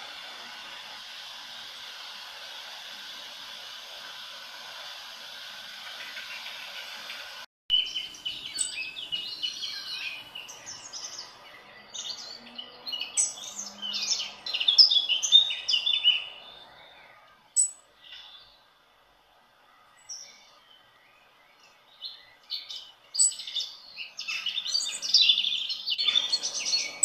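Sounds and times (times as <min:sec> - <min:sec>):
bird chirping and warbling: 0:06.0 - 0:18.6, 0:19.8 - 0:27.0.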